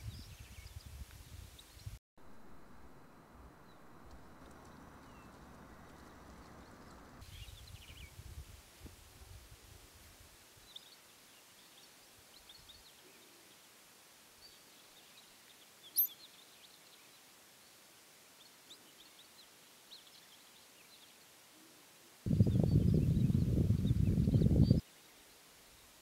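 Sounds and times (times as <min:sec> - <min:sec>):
faint high chirps: 0:15.9 - 0:16.4.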